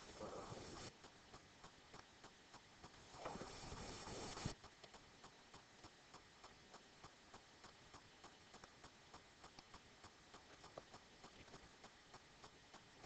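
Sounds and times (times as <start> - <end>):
faint regular ticking: 0.0 - 13.0.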